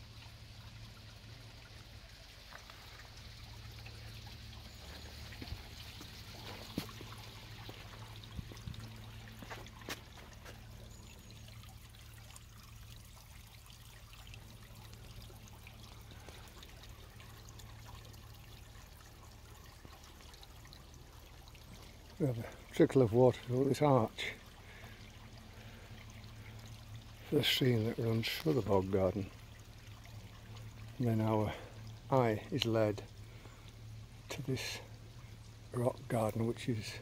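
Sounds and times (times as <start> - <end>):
water trickling over stones: 0.0 - 37.0.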